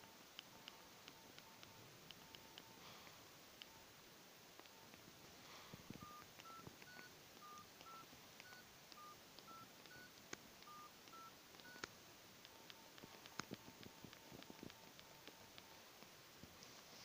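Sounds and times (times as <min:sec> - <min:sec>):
phone keypad beeps: 0:06.0 - 0:15.8.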